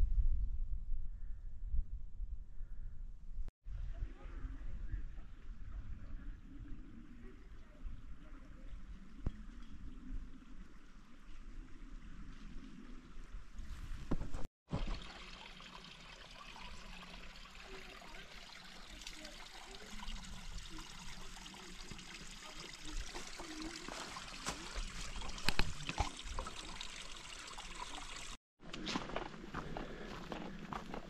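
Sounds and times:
stream trickling over rocks: 0:14.7 - 0:28.4.

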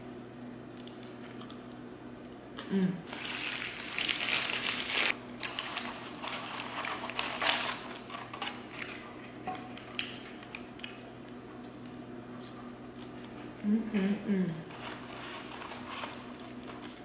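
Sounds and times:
paper bag crinkling: 0:03.1 - 0:09.1
paper wrapper crumpling: 0:03.1 - 0:09.1.

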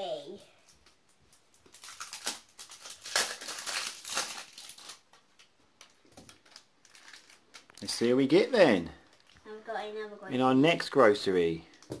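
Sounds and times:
plastic wrapper crinkling: 0:00.6 - 0:09.5.

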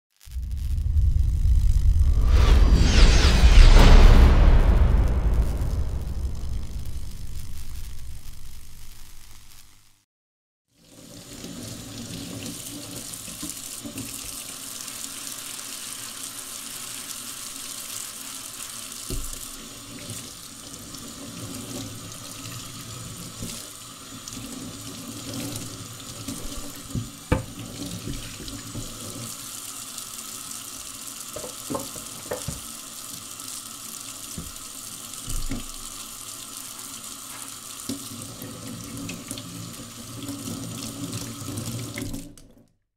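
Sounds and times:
tap running into metal sink: 0:26.4 - 0:28.9, 0:31.4 - 0:32.7, 0:35.2 - 0:35.8.

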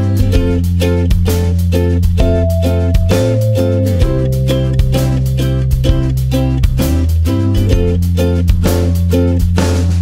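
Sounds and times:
steady bass line: 0:02.2 - 0:08.2
plucked guitar notes: 0:02.2 - 0:08.4.

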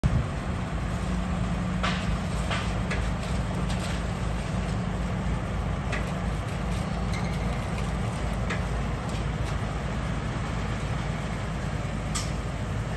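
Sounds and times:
diesel machinery engine running: 0:00.0 - 0:12.9.

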